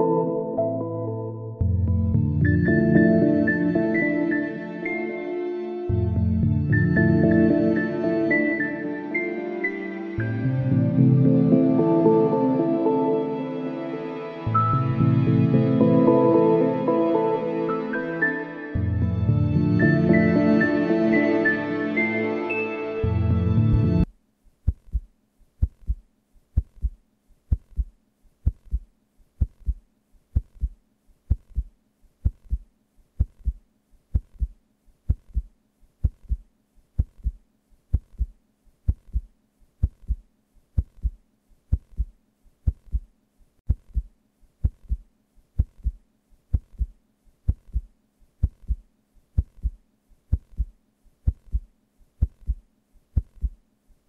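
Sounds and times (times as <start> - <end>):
heartbeat double thump: 24.7 - 29.8, 30.4 - 43.1, 43.7 - 53.6.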